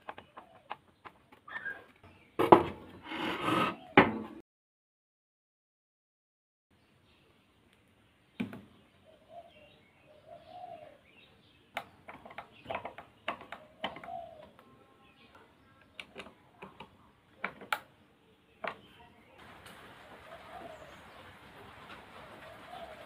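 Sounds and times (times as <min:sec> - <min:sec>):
dove cooing: 0:09.1 - 0:11.1, 0:13.4 - 0:14.6, 0:19.8 - 0:23.0.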